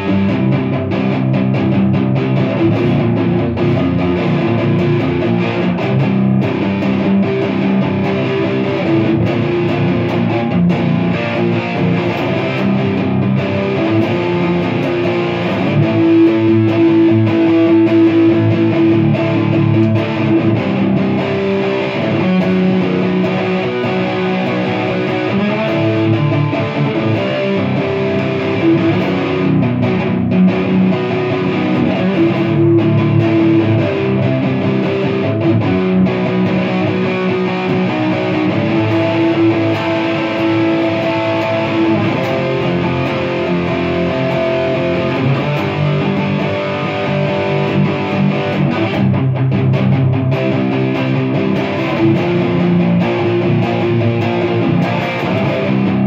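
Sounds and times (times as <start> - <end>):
overdriven electric guitar chords: 0.0 - 56.0.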